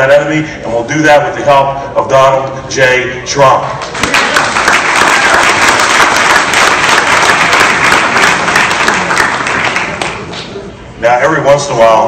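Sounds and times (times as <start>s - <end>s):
audience applauding: 3.8s - 10.5s.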